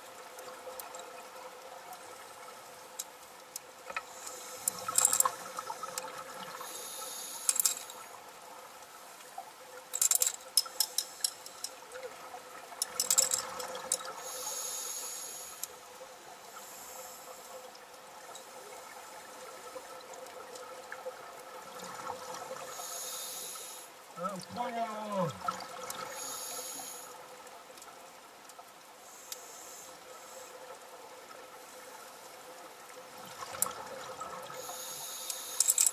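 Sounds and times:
faint steady hum: 0.0s - 35.9s
diver inhaling through regulator: 14.2s - 15.6s, 22.7s - 23.9s, 26.1s - 27.1s, 34.6s - 35.6s.

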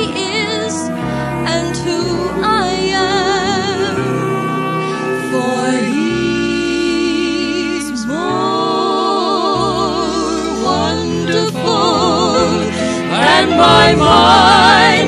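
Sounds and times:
vocal group singing in harmony: 0.0s - 15.0s
low accompaniment: 9.7s - 15.0s.

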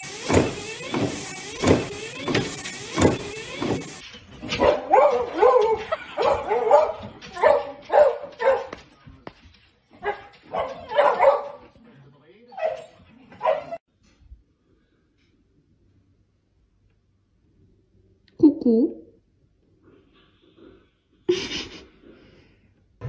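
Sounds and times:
dog yelping and whining: 4.6s - 8.5s, 12.5s - 13.8s.

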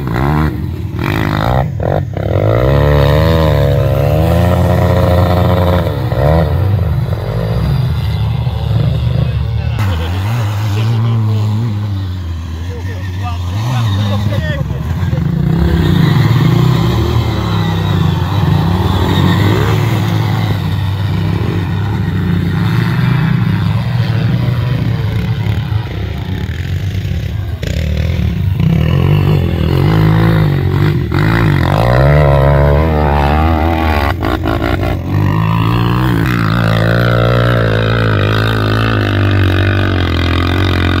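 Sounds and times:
quad bike engines revving: 0.0s - 41.0s.

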